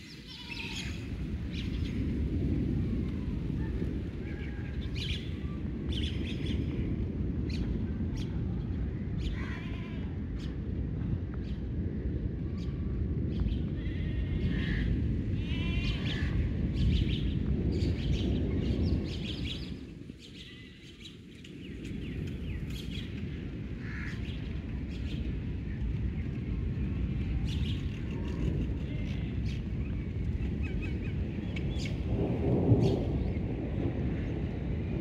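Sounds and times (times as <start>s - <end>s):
birds chirping and trilling: 13.4s - 25.3s.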